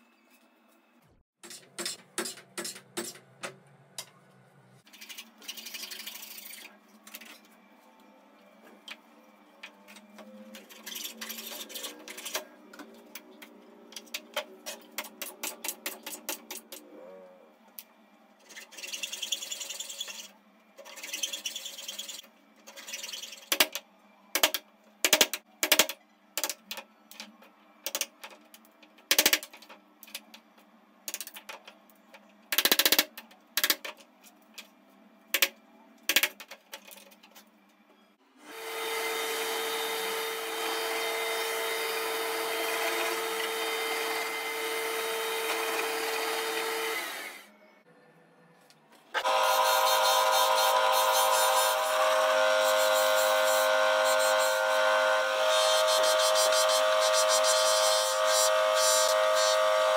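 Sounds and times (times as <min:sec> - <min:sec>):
hacksaw cutting wood: 0:38.5 - 0:47.4, 0:49.2 - 0:59.9
electric drill whining: 0:38.5 - 0:47.5, 0:49.2 - 0:59.9.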